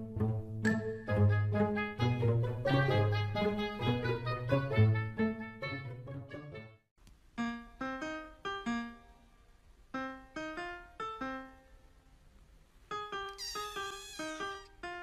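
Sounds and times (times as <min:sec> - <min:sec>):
piano melody: 0:07.4 - 0:09.1.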